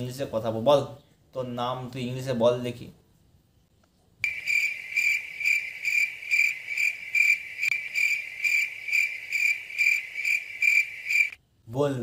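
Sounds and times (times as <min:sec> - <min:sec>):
cricket chirping: 0:04.2 - 0:11.4.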